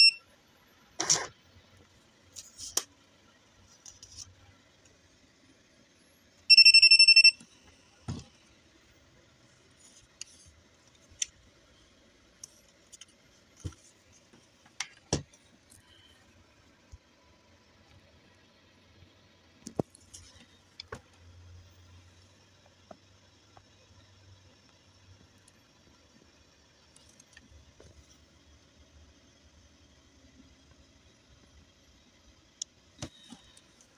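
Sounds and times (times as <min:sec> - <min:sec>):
high electronic beep: 0:00.0 - 0:00.2, 0:06.5 - 0:07.4.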